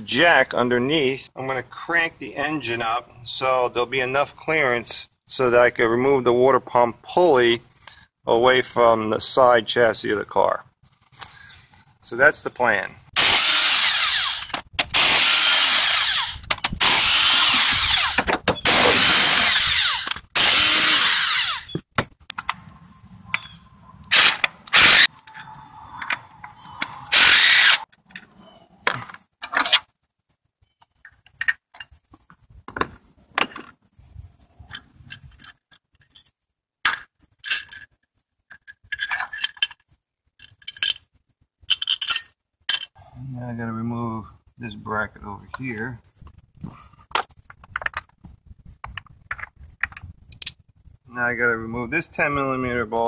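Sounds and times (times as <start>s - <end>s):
impact wrench bursts: 13.2s - 21.8s, 24.1s - 25.1s, 27.1s - 27.9s
metal bolts clinking: 34.7s - 41.1s, 41.7s - 43.0s.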